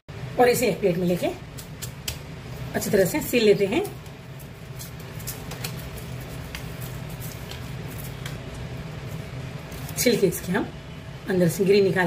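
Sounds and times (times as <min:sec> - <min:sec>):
steady low hum: 0:00.1 - 0:12.0
garlic skin crackling: 0:01.4 - 0:10.5.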